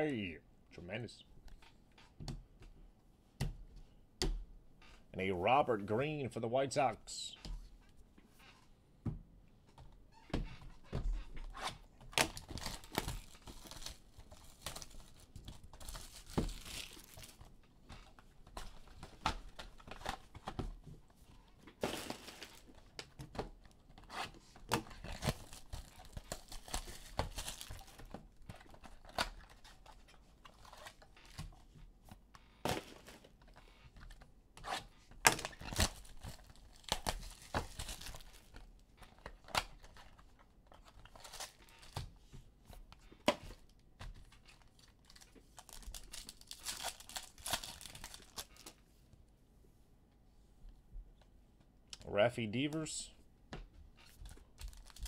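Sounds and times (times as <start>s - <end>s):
wrappers tearing and crinkling: 12.2s - 17.4s, 24.9s - 28.1s, 35.4s - 38.6s, 44.4s - 48.8s, 54.0s - 55.0s.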